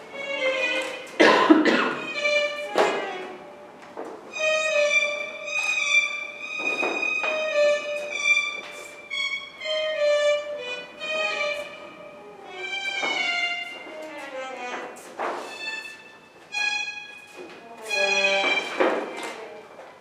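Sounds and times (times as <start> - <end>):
violin playing slow notes: 0.0 - 19.7.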